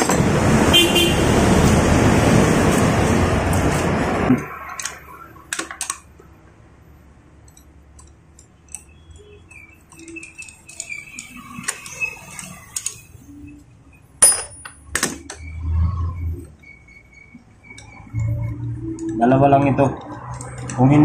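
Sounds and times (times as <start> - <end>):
loud rushing noise: 0.0 - 4.4
socket wrench clicking: 7.5 - 13.0.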